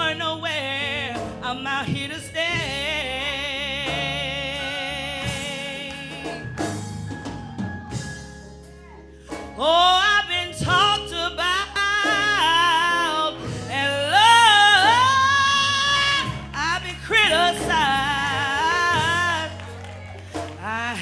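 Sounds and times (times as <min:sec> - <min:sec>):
female gospel singer: 0:00.0 - 0:06.8, 0:08.8 - 0:21.0
band accompaniment with drums: 0:00.0 - 0:21.0.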